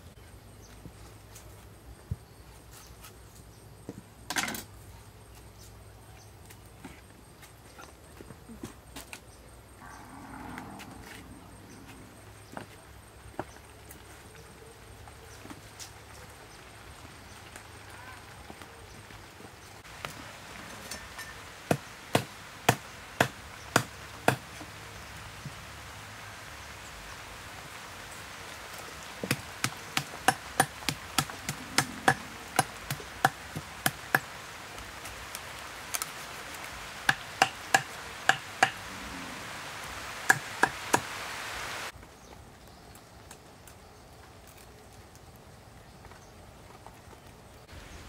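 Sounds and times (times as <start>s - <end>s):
cleaver chopping fish on wood: 21.7s - 24.4s, 29.2s - 34.3s, 37.1s - 38.8s.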